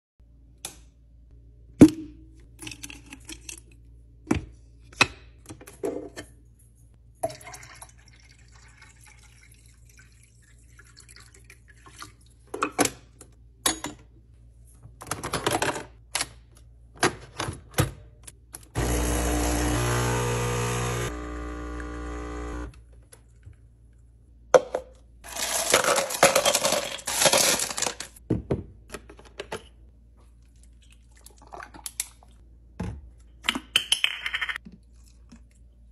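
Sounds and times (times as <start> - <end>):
coffee machine pump humming: 18.8 - 22.8.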